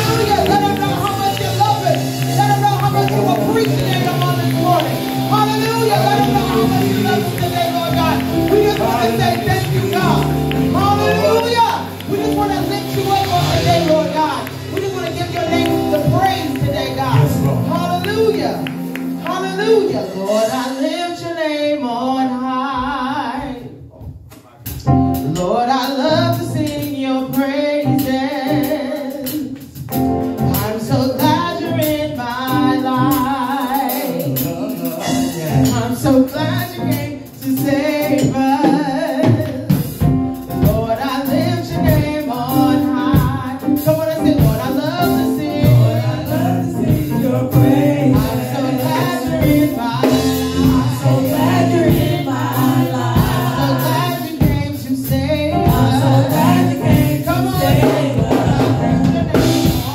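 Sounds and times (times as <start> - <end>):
backing voices singing: 0.0 - 21.2, 40.6 - 59.9
drum kit: 0.0 - 21.4, 22.8 - 59.9
keyboard: 0.0 - 59.9
woman singing into microphone: 44.4 - 59.9.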